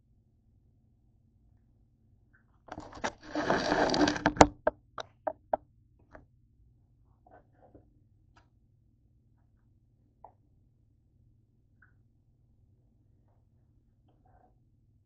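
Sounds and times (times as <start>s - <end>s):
scraping and rustling on counter: 2.7s - 4.7s
knocks and taps on counter: 4.4s - 5.6s.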